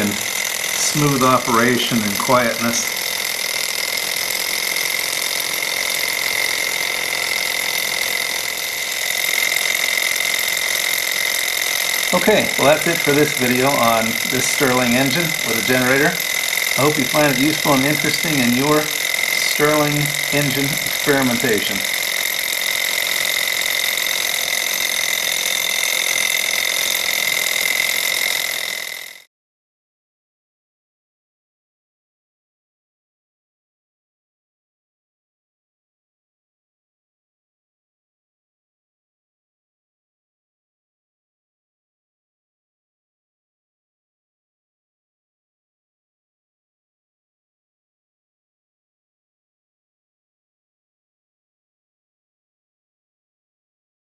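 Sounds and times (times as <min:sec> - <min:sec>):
fast mechanical chatter: 0:00.0 - 0:29.3
small engine whirring with whine: 0:00.0 - 0:29.3.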